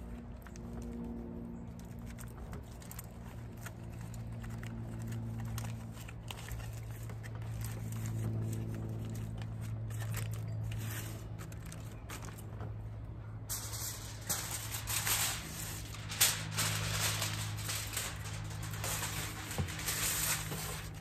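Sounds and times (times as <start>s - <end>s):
aluminum foil crinkling: 0.0s - 12.8s, 13.5s - 21.0s
low hum: 7.6s - 21.0s.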